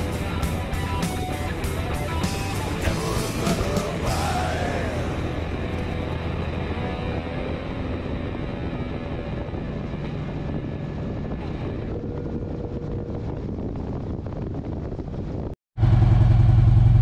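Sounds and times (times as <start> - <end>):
wind on microphone: 2.8 - 15.6
motorcycle engine: 15.8 - 17.0.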